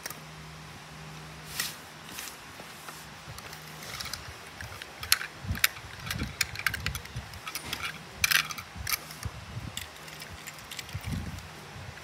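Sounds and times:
toy cars clicking and clacking: 0:03.4 - 0:09.2, 0:09.8 - 0:11.4.

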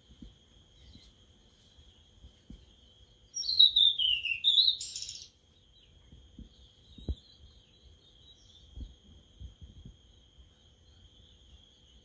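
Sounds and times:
high-pitched insect trill: 0:00.0 - 0:12.0
songbird singing: 0:00.0 - 0:12.0.

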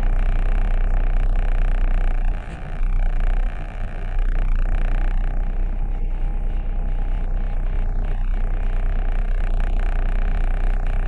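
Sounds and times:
engine rumble inside vehicle cab: 0:00.0 - 0:11.0
noisy hum: 0:00.0 - 0:11.0.

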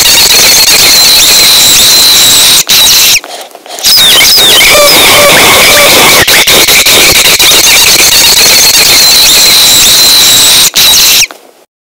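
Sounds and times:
distorted high-pitched squeal: 0:00.0 - 0:03.2, 0:03.8 - 0:11.3.

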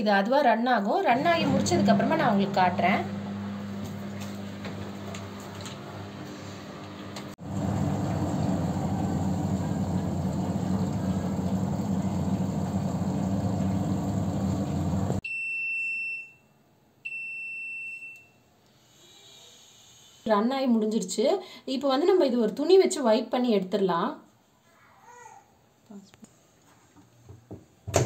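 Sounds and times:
washing machine humming: 0:01.1 - 0:15.2.

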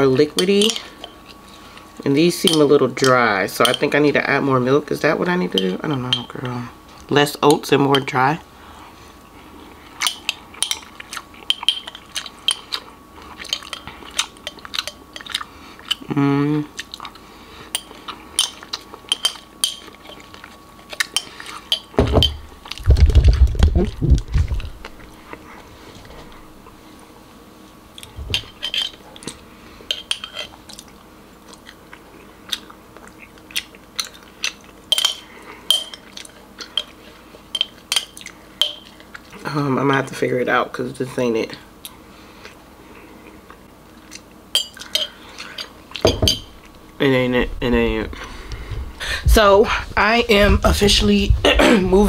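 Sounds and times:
metal spoon clinking against a dish: 0:00.4 - 0:01.2, 0:02.4 - 0:04.0, 0:10.0 - 0:10.9, 0:34.9 - 0:36.1, 0:37.5 - 0:38.9.

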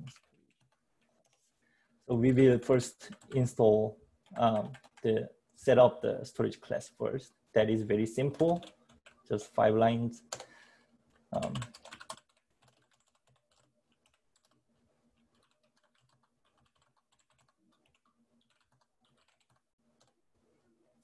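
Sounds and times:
computer keyboard typing: 0:00.0 - 0:01.4, 0:04.3 - 0:05.1, 0:08.3 - 0:09.2, 0:11.1 - 0:14.6, 0:15.2 - 0:20.2.

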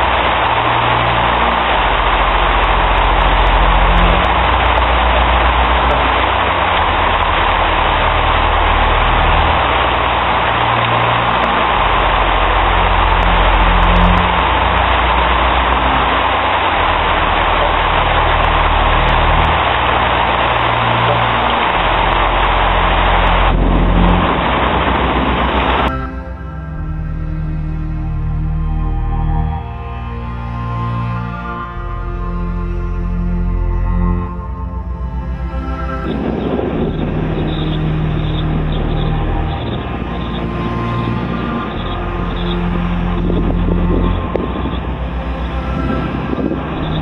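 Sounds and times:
heavy rain pouring: 0:00.0 - 0:47.0
low sustained music notes: 0:00.0 - 0:47.0.

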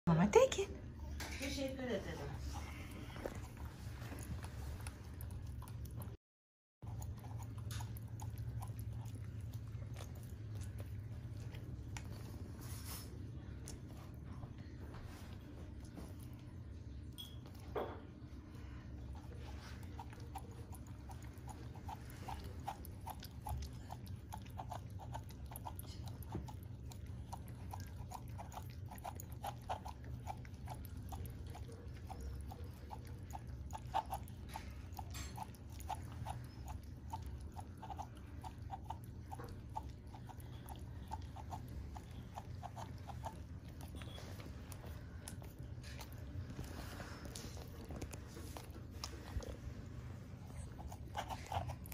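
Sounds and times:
dog lapping drink: 0:19.0 - 0:51.9.

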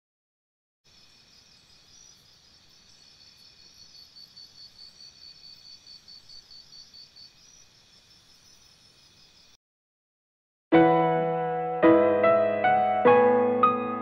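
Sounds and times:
insect chirping: 0:00.9 - 0:09.6.

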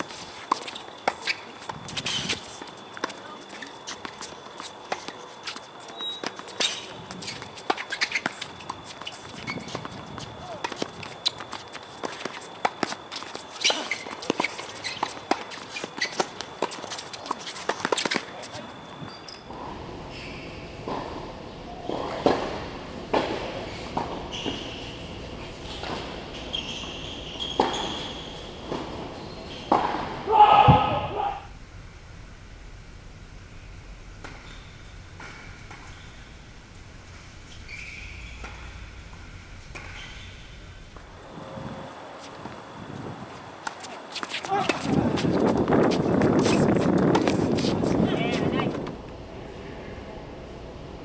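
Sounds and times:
shoes scuffing on court: 0:00.0 - 0:19.2, 0:43.3 - 0:48.6
tennis ball bouncing: 0:29.7 - 0:31.2, 0:33.8 - 0:41.2
tennis ball hit by rackets: 0:29.7 - 0:31.3.

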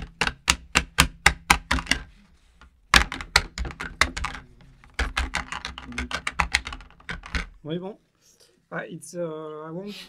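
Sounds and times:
taps and knocks on tabletop: 0:00.0 - 0:07.6.

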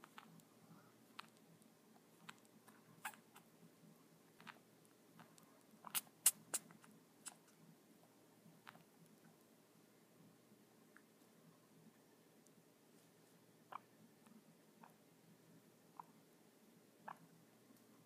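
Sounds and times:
guinea pig clicks and ticks: 0:00.0 - 0:00.5, 0:01.1 - 0:03.5, 0:04.4 - 0:07.6, 0:08.6 - 0:09.2, 0:13.7 - 0:15.0, 0:17.0 - 0:17.9.

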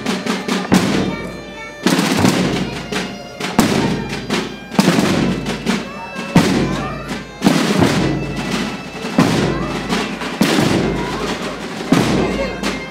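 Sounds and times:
dense steady din: 0:00.0 - 0:12.9
bass drum beats: 0:07.7 - 0:12.9.

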